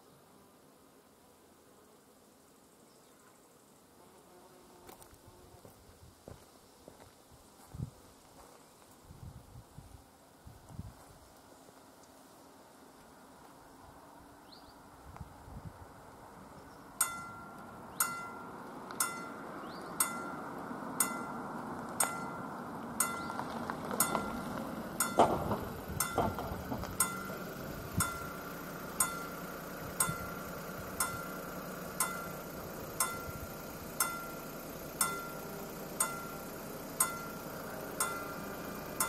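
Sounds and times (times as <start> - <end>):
level crossing warning bell: 17.0 - 21.4, 22.0 - 30.4, 31.0 - 38.4.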